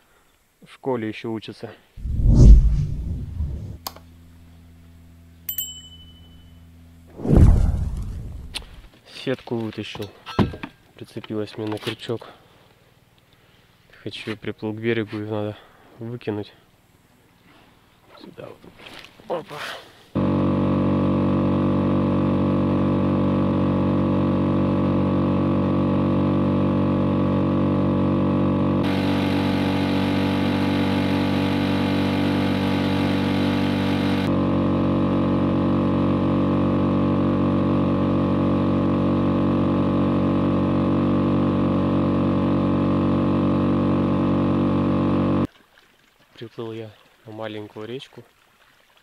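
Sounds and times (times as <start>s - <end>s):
outboard motor running: 20.2s - 45.5s.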